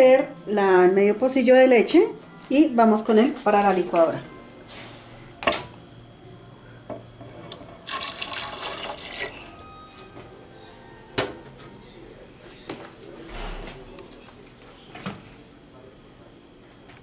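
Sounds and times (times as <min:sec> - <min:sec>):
milk pouring into blender jar: 0:07.8 - 0:09.5.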